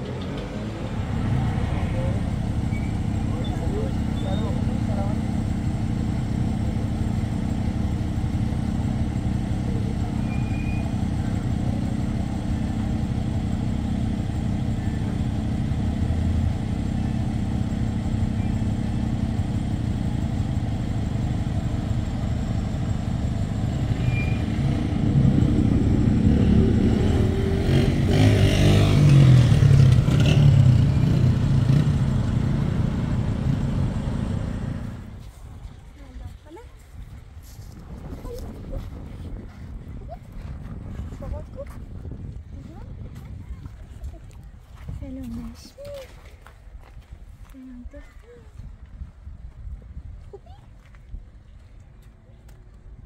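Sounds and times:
vehicle passing by: 0:00.0 - 0:20.5, 0:22.2 - 0:35.2
vehicle engine humming: 0:00.0 - 0:53.0.

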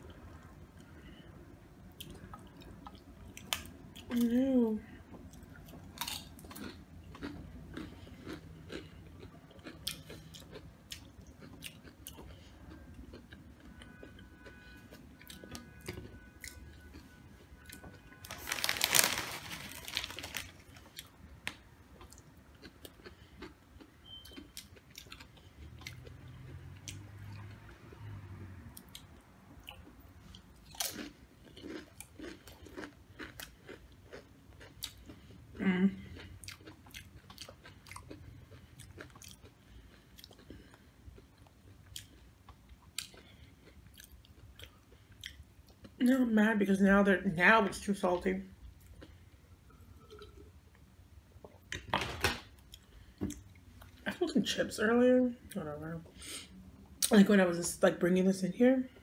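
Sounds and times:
chewing crunchy chips: 0:01.9 - 0:28.1, 0:28.7 - 0:46.1, 0:48.8 - 0:50.6.

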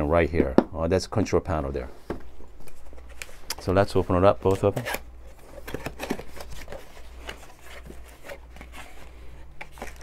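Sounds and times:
packaging rustling and scraping: 0:02.5 - 0:10.0.

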